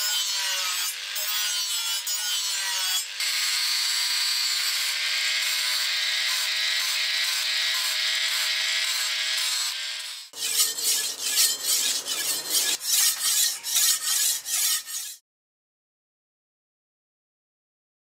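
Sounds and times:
angle grinder whining on steel: 0:00.0 - 0:15.2
blade sharpening on whetstone: 0:10.4 - 0:15.2.

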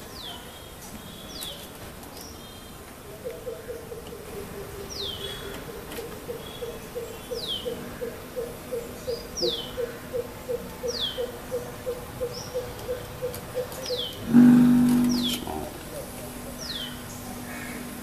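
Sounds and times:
bird calling deep hoots: 0:06.3 - 0:17.9.

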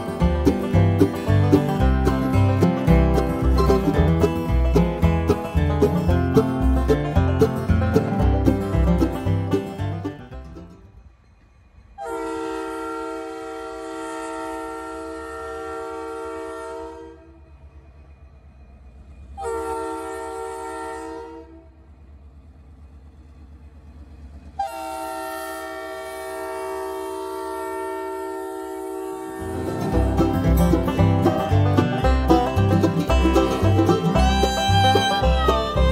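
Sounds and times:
locomotive horn blasts: 0:12.0 - 0:17.4, 0:19.4 - 0:21.8, 0:24.6 - 0:35.9.

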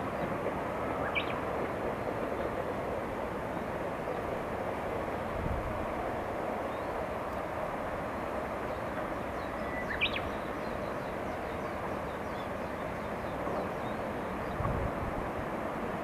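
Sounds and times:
outdoor background noise: 0:00.0 - 0:16.0
small birds chirping: 0:08.7 - 0:14.6.

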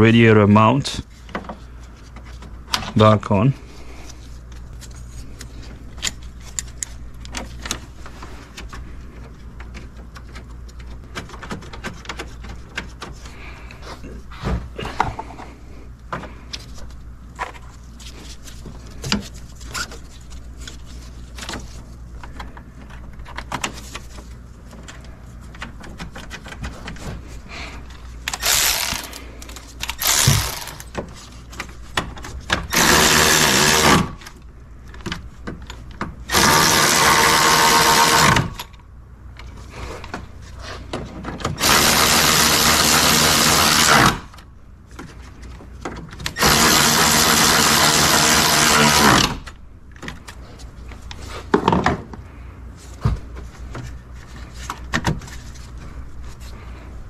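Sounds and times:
cordless power tool running: 0:28.3 - 0:29.2, 0:29.8 - 0:30.8, 0:32.7 - 0:34.2, 0:36.3 - 0:38.7, 0:41.6 - 0:44.4, 0:46.4 - 0:49.4.

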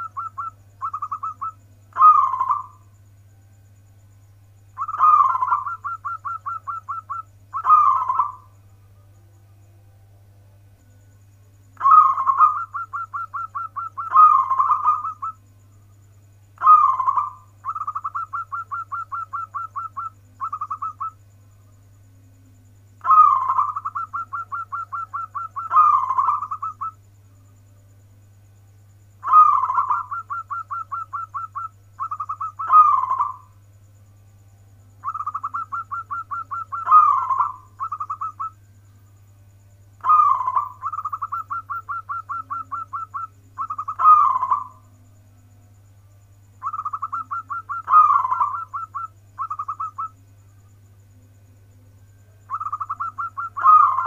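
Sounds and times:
dove cooing: 0:00.0 - 0:02.9, 0:04.8 - 0:08.6, 0:11.8 - 0:15.4, 0:16.6 - 0:21.2, 0:23.0 - 0:27.0, 0:29.2 - 0:33.6, 0:35.0 - 0:38.6, 0:40.0 - 0:44.9, 0:46.6 - 0:50.2, 0:52.4 - 0:54.0.

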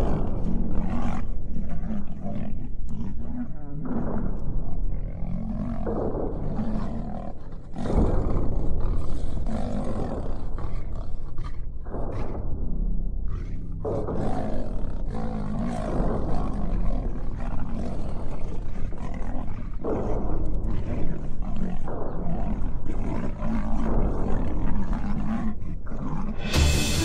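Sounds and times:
deep rumble: 0:00.0 - 0:25.0
lion and tiger roaring: 0:00.0 - 0:27.0.

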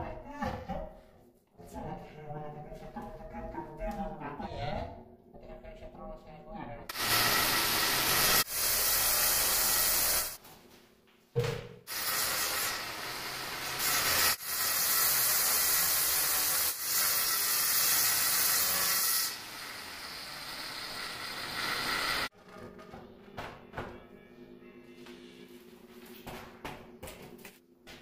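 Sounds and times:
angle grinder cutting stone: 0:06.9 - 0:10.4, 0:11.9 - 0:22.3.

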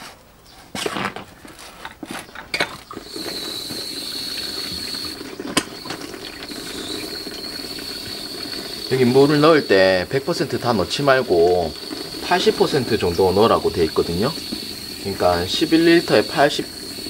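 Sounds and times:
water running into tank: 0:02.5 - 0:17.0.

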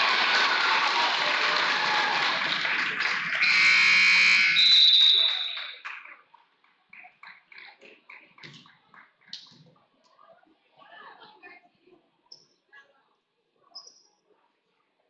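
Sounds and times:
crowd cheering and shouting: 0:00.0 - 0:03.5
electronic scoreboard horn: 0:03.4 - 0:04.8.

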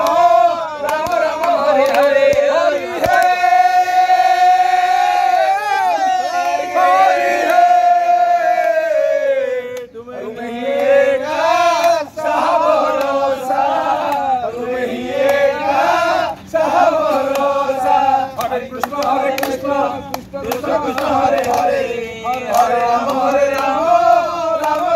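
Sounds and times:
men shouting and laughing: 0:02.6 - 0:10.4.

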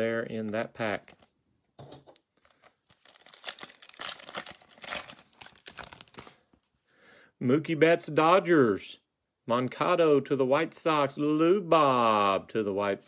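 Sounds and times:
foil wrapper tearing and crinkling: 0:02.5 - 0:06.4.

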